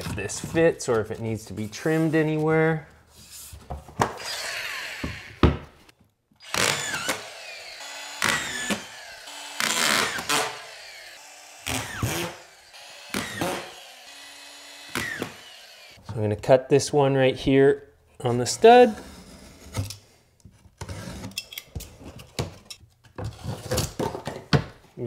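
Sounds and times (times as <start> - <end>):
cordless drill whirring: 4.2 - 5.4, 6.4 - 16.0
drywall scraping against wall: 18.5 - 19.9.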